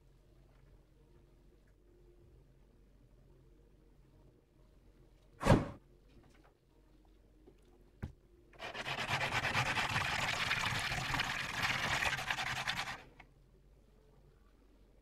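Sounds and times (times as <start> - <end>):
pebble rasping on wet sandpaper: 8.6 - 13.1.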